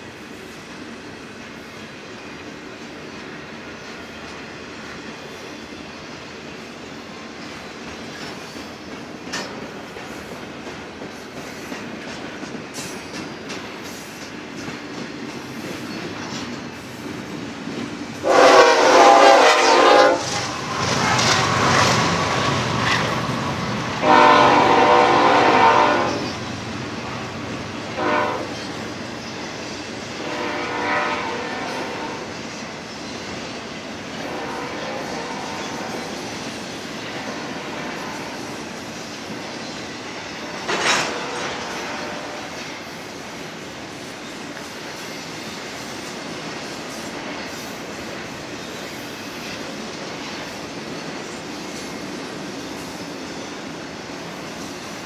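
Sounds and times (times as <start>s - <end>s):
train wheel clicks: 7.4s - 18.2s, 38.1s - 41.8s
locomotive horn blasts: 18.2s - 20.4s, 24.0s - 26.4s, 28.0s - 28.6s, 30.2s - 32.3s, 34.2s - 36.1s, 41.0s - 42.6s
freight cars rumbling past: 20.0s - 29.1s.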